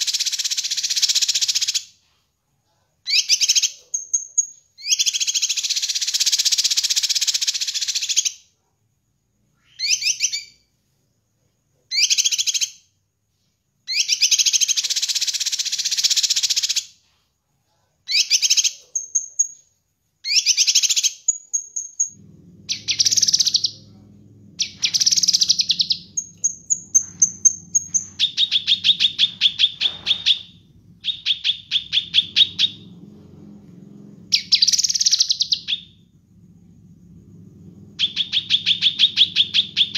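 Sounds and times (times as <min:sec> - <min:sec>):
bird singing varied phrases: 0:09.5 - 0:10.7, 0:13.9 - 0:16.8, 0:20.2 - 0:23.9, 0:24.6 - 0:32.9, 0:34.3 - 0:36.0, 0:38.0 - 0:39.9
low steady hum: 0:22.0 - 0:39.9.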